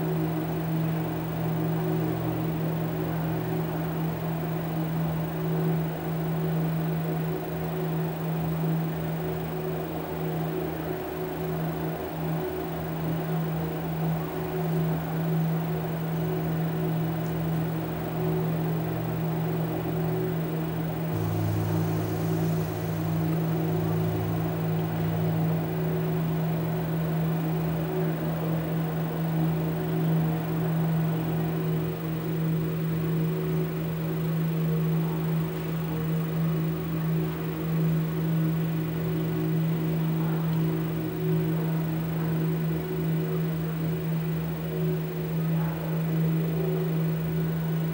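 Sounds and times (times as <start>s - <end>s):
steady low hum: 0.0s - 47.9s
deeper tone: 21.1s - 27.2s.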